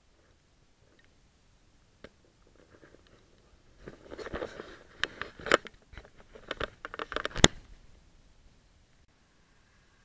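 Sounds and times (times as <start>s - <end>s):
camera handling rustling: 2.5s - 7.6s
sharp clicks and knocks: 3.9s - 7.7s.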